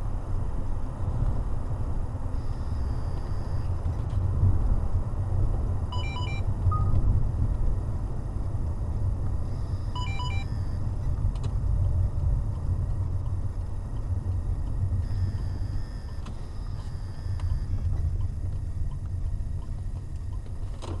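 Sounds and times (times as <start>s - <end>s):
car engine rumble: 0.0s - 21.0s
road noise inside car: 0.0s - 21.0s
short electronic beeps: 5.9s - 7.0s, 9.5s - 10.8s, 15.0s - 17.8s.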